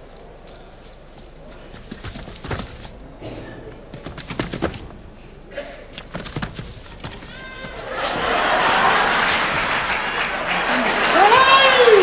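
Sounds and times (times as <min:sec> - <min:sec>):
footsteps on stage boards: 0:06.0 - 0:08.3.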